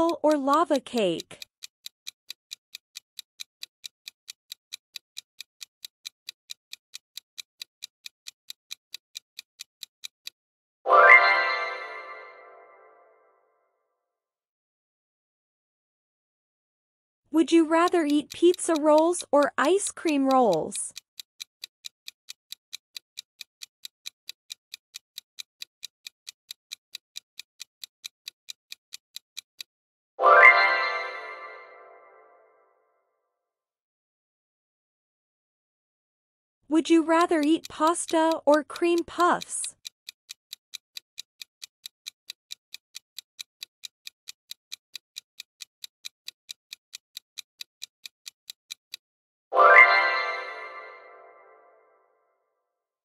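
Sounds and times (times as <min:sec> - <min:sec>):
clock ticking: 0:00.0 - 0:10.4, 0:17.4 - 0:29.7, 0:36.8 - 0:49.0.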